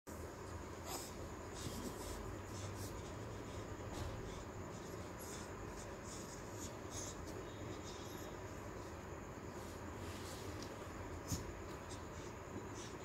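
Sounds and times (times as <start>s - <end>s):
low steady hum: 0.1s - 13.0s
rustling and scratching of fur: 9.2s - 12.5s.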